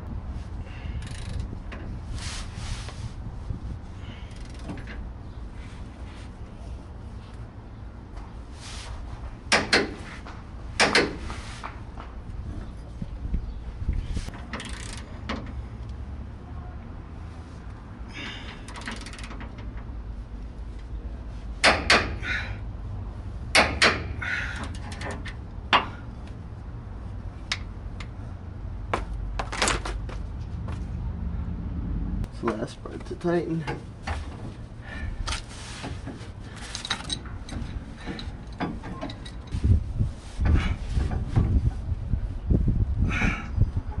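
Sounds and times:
ratchet wrench clicking: 1.0s - 1.5s, 14.5s - 15.1s, 18.7s - 19.5s
dull knocks of tool on metal: 10.8s - 11.2s, 21.6s - 22.2s, 23.5s - 24.1s.

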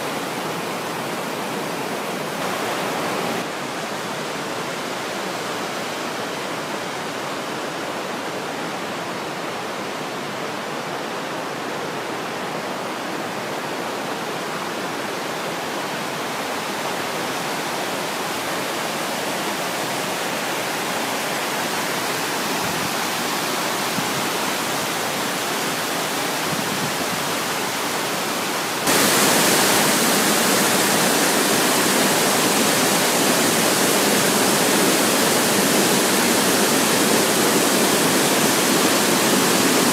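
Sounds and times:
small waterfall splashing: 0.0s - 6.1s, 15.9s - 39.9s
stream rushing over stones: 0.0s - 7.7s, 11.5s - 39.9s.

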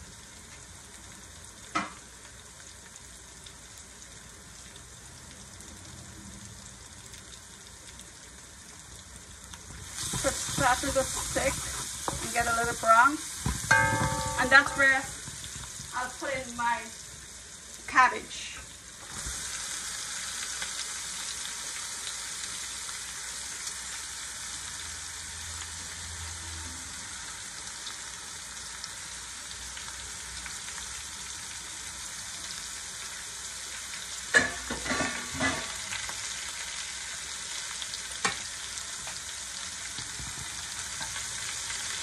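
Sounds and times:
cabbage sizzling in oil: 0.0s - 42.0s
sharp knock: 13.7s - 15.0s.

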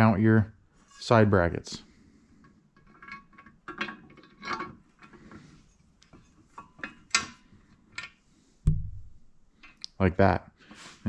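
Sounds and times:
metal brackets knocking and clinking: 2.8s - 5.2s.

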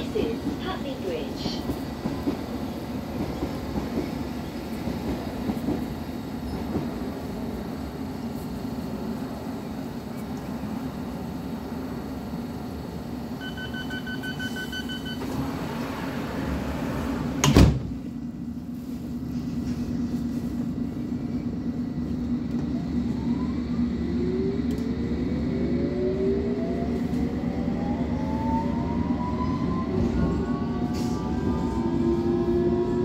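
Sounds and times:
train humming: 0.0s - 33.0s
door warning beeps: 13.4s - 15.3s
sliding doors thumping shut: 16.8s - 18.0s.

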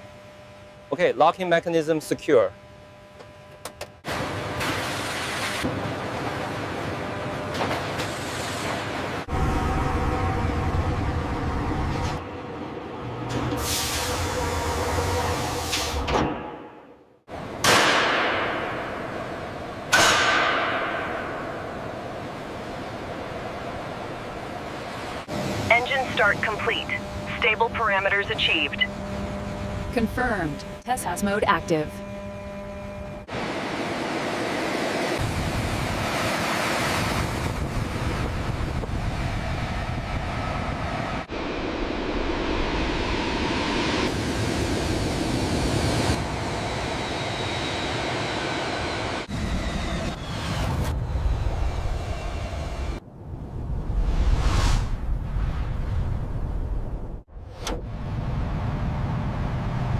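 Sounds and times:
deep engine rumble: 9.2s - 16.0s, 21.8s - 30.8s
low rumble: 9.3s - 13.5s, 37.2s - 46.7s, 49.2s - 59.9s
jet engines rushing: 21.3s - 28.9s, 33.3s - 59.9s
falling whoosh: 53.6s - 56.5s.

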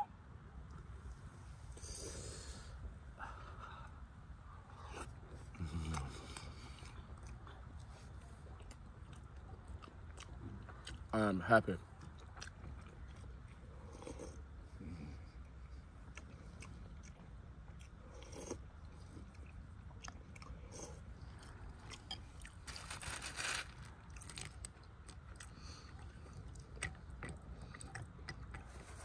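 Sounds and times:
quiet chewing: 0.6s - 29.0s
rustle of bread in wicker basket: 22.5s - 24.6s.

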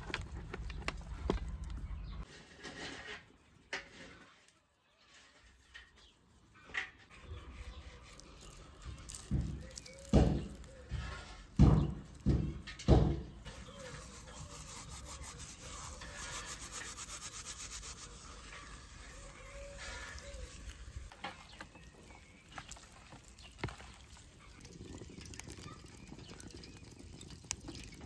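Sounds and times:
dried herbs rustling: 7.1s - 12.6s, 13.4s - 27.5s.

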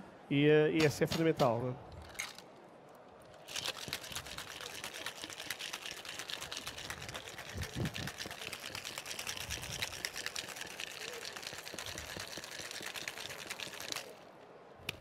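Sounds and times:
ice rattling in cocktail shaker: 3.4s - 14.2s.

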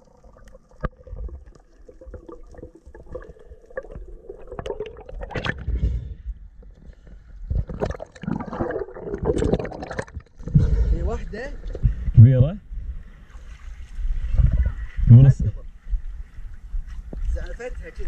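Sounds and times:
water gurgling underwater: 0.0s - 12.2s.

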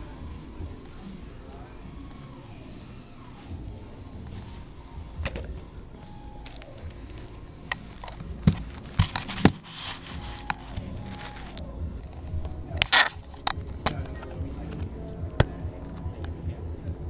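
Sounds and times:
clothing rustling and scraping: 6.5s - 11.6s.

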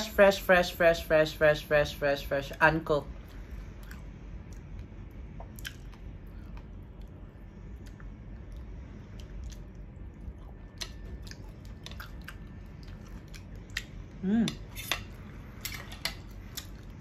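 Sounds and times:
person humming: 14.2s - 14.6s
fork scraping a plate: 14.5s - 16.4s.

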